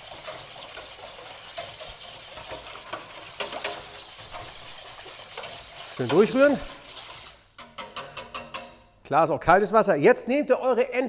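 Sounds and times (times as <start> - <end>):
whisk swishing in water: 0.0 - 8.5
whisk wires clinking on metal: 7.6 - 8.9.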